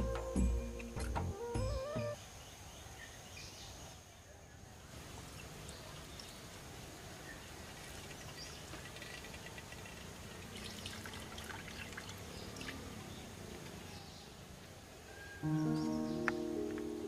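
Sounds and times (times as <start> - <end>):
liquid trickling into a pot: 7.2 - 13.2.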